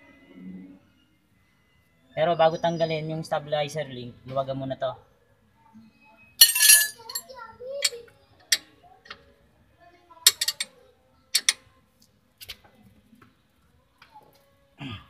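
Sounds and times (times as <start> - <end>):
wrenches clicking on a nut: 10.3 - 10.7, 11.4 - 11.6.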